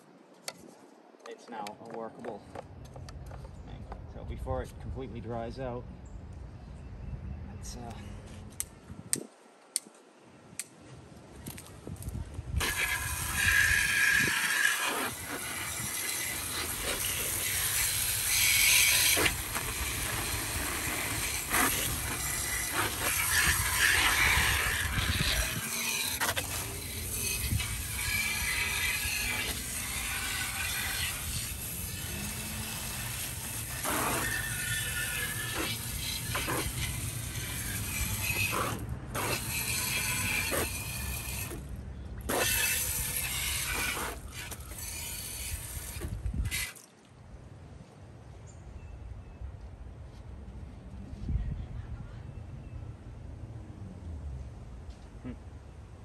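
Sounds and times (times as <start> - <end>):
scrubbing and scraping on metal: 12.6 - 41.7, 42.3 - 46.8.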